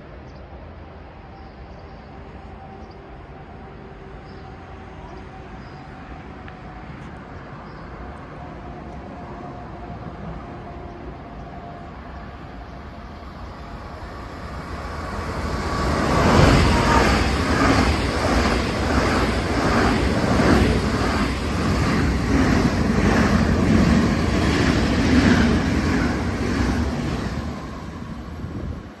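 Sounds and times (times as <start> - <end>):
train passing at speed: 0.0 - 29.0.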